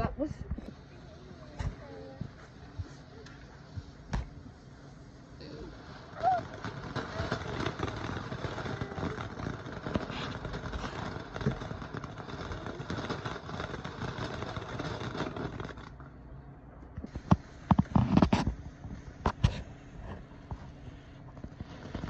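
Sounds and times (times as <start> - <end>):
firework hissing and crackling: 0.2 - 16.2, 17.0 - 22.0
sharp pops: 6.1 - 16.0.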